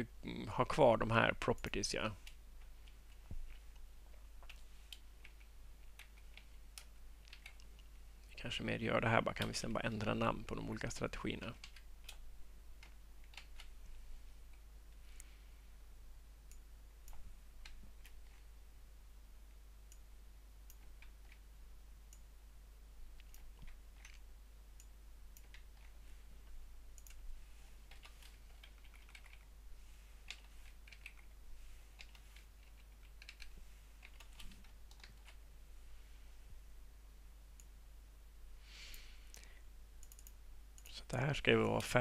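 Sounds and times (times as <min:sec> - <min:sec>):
computer keyboard keystrokes: 0:04.4 - 0:07.8, 0:11.6 - 0:12.2, 0:27.9 - 0:29.5, 0:30.3 - 0:31.3, 0:32.0 - 0:35.4.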